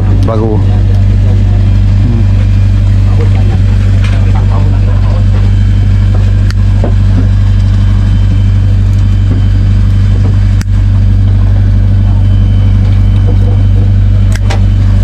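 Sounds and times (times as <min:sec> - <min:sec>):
boat engine humming: 0:00.0 - 0:15.0.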